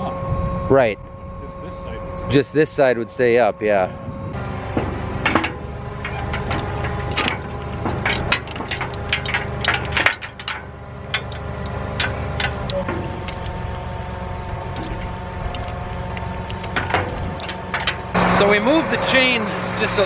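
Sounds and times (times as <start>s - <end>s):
tractor engine idling: 1.4s - 20.0s
steel chain clanking: 4.7s - 18.2s.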